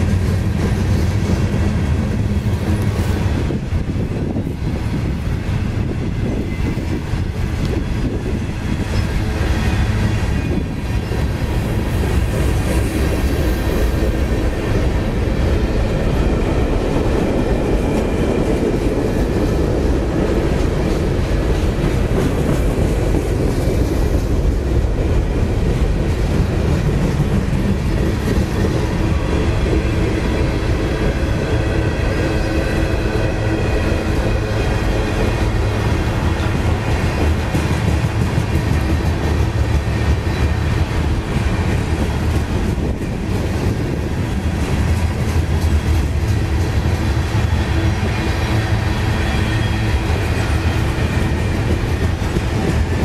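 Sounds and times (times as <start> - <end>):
train wheels on rails: 0.0 - 53.0.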